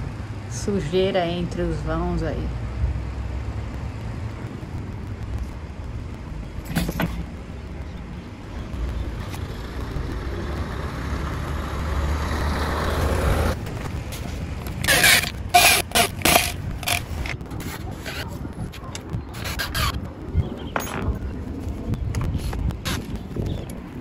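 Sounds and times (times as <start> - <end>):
low rumble: 1.8 - 24.0
rushing noise: 2.5 - 24.0.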